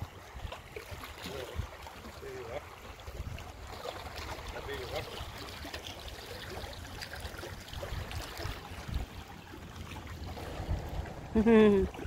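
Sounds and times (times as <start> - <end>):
small waves lapping on rocks: 0.0 - 12.0
wind rumble on microphone: 7.5 - 12.0.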